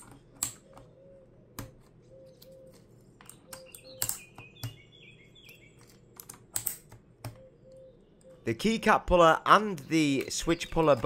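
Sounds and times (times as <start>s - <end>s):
squeaky chirps of keycaps: 2.2s - 6.6s.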